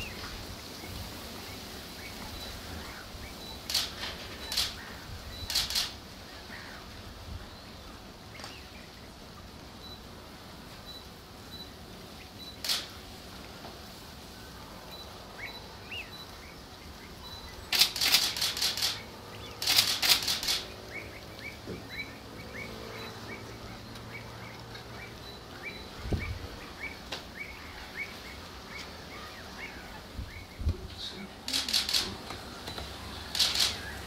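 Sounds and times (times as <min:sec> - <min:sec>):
birds chirping: 0:00.0 - 0:34.0
bursts of rapid clicks: 0:03.6 - 0:04.8, 0:05.5 - 0:06.0, 0:12.6 - 0:13.0, 0:17.7 - 0:20.7, 0:31.5 - 0:34.0.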